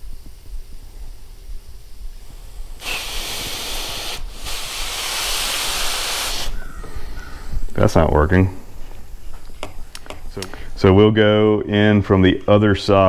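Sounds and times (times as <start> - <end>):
compressed air hissing: 2.1 - 7.6.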